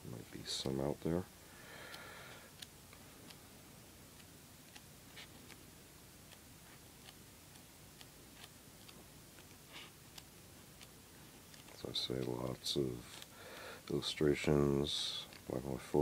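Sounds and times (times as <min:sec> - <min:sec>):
low room hiss: 0:00.0 - 0:16.0
book pages flicking: 0:07.0 - 0:13.3.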